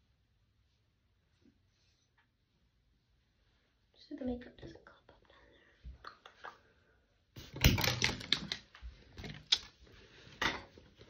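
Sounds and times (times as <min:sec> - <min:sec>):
plastic makeup items clicking: 0:07.6 - 0:08.7.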